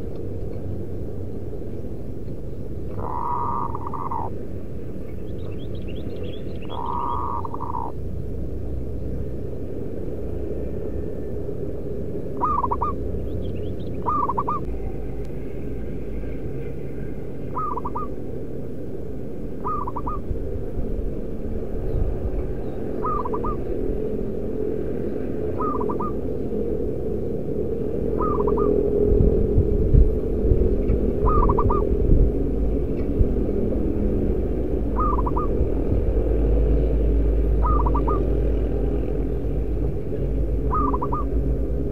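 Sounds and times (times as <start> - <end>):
low rumble: 0.0 - 41.9
dove cooing: 2.9 - 4.4, 6.6 - 8.0, 12.4 - 13.0, 14.0 - 16.4, 17.4 - 18.2, 19.6 - 20.3, 22.9 - 24.1, 25.5 - 26.4, 28.1 - 28.9, 30.9 - 32.1, 34.8 - 35.7, 37.5 - 38.8, 40.5 - 41.6.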